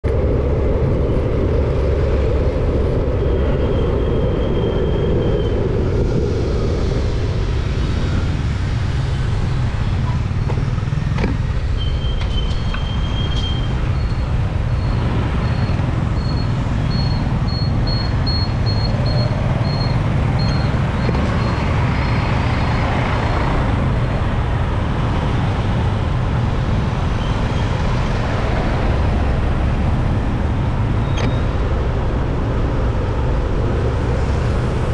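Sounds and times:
traffic engines and road noise: 0.0s - 34.9s.

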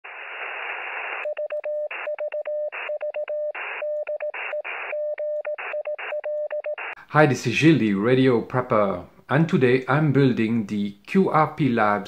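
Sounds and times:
radio static hiss: 0.0s - 1.3s, 3.6s - 5.0s, 6.8s - 7.0s
morse code tone: 1.2s - 7.0s.

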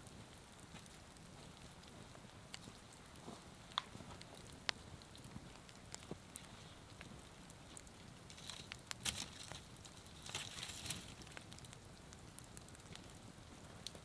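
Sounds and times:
faint rustling: 4.9s - 11.8s.

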